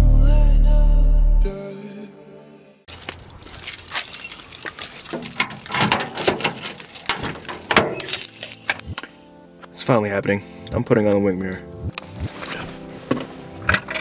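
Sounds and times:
keys jangling: 2.9s - 9.1s
car door unlocking and opening: 3.9s - 9.0s.

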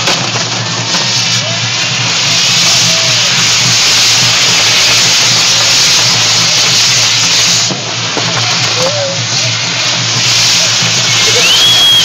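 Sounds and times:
fireworks sparks rushing hiss: 0.0s - 12.0s.

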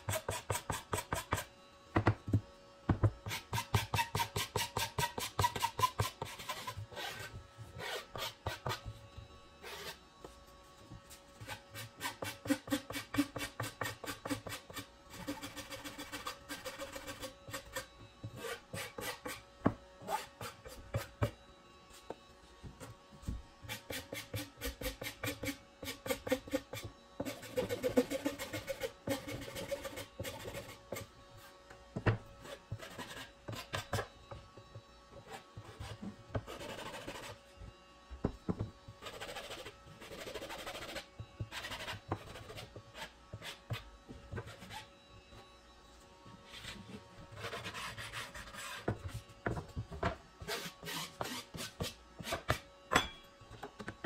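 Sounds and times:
metal file rasping on particleboard: 0.0s - 1.5s, 3.2s - 8.8s, 23.7s - 31.1s, 32.4s - 34.0s, 46.6s - 49.0s.

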